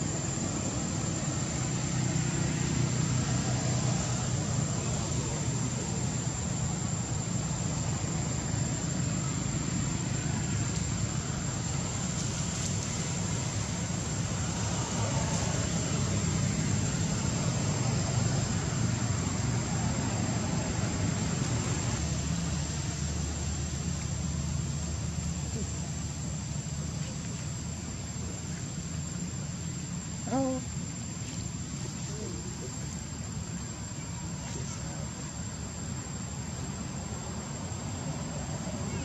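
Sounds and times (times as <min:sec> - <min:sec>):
background rumble and hiss: 0:00.0 - 0:39.0.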